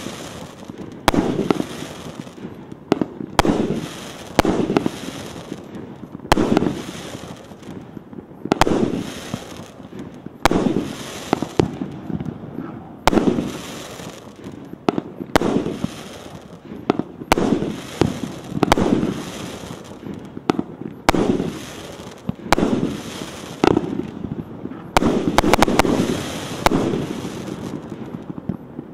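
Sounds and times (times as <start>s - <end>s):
fireworks burst crackle: 0.0s - 28.9s
fireworks shots banging: 0.0s - 28.9s.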